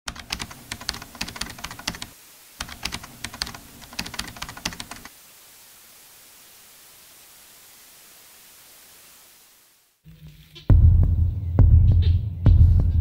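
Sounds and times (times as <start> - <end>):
keyboard keystroke clicks: 0.1 - 5.1
faint hiss: 0.1 - 10.7.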